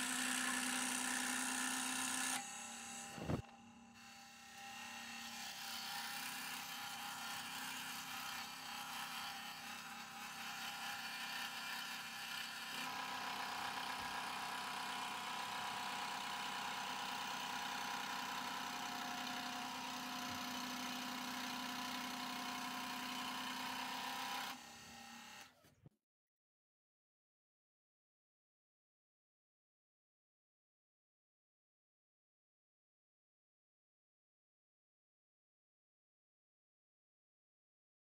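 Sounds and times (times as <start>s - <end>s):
scroll saw cutting plywood: 0.0s - 25.9s.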